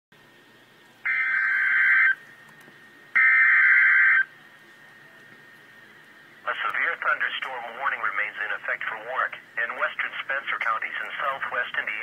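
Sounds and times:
digital data tone bursts: 1.1 - 2.2.

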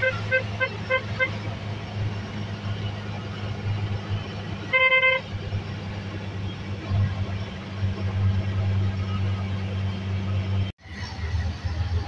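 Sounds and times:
held horn honk: 0.0 - 1.5, 4.7 - 5.3
engine running low hum: 0.0 - 12.0.

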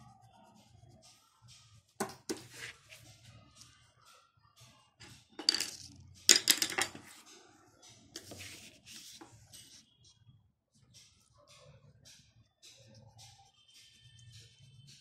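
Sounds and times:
pencil knocking and scraping: 1.9 - 3.0, 7.9 - 9.8
paper rustling and sliding: 8.2 - 9.7.

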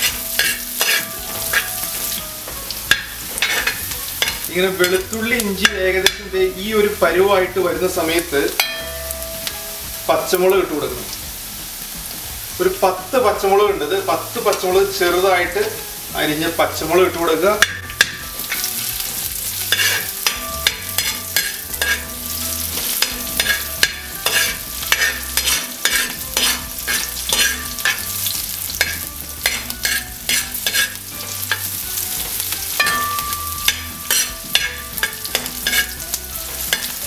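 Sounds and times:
metal spoon scraping a wok: 0.0 - 6.4, 17.6 - 37.0
food sizzling in oil: 0.0 - 37.0.

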